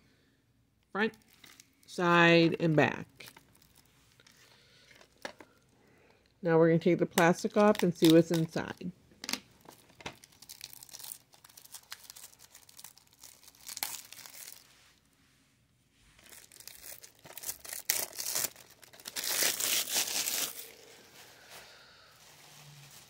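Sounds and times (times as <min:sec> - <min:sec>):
plastic wrap crinkling and tearing: 0:01.1 - 0:01.9, 0:03.1 - 0:05.7, 0:09.5 - 0:15.1, 0:16.2 - 0:23.0.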